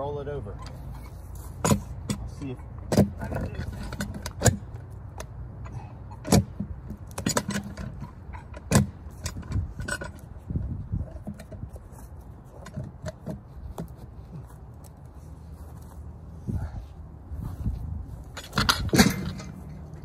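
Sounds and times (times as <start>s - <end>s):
metal hook clanking on log: 0.6s - 4.6s, 5.6s - 10.2s, 18.4s - 20.0s.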